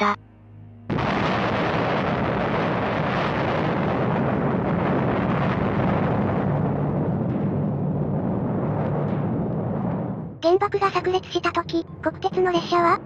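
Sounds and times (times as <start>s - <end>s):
explosion with deep rumble: 0.9s - 10.4s.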